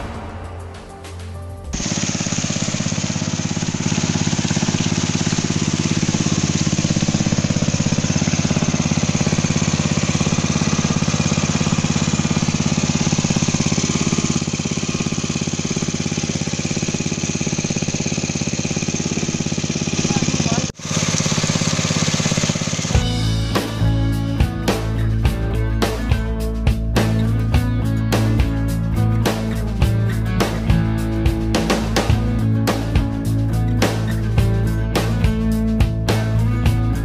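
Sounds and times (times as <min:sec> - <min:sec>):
small petrol engine running: 0:01.7 - 0:26.2.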